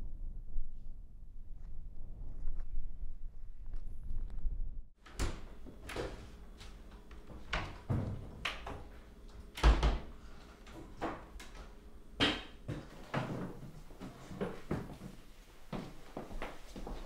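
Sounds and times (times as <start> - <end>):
door knocks and clunks: 7.4 - 8.9.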